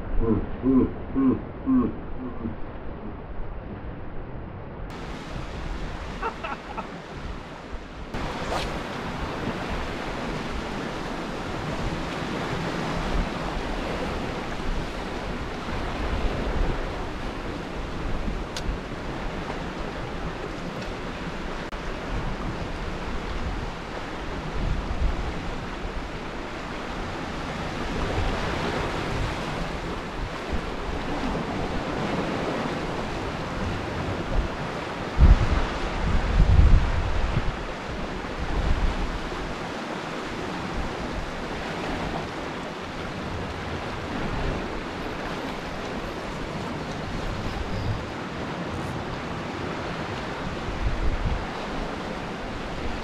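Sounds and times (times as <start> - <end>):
wind rumbling on microphone: 0.0 - 53.0
surf breaking on rocks: 4.9 - 13.9.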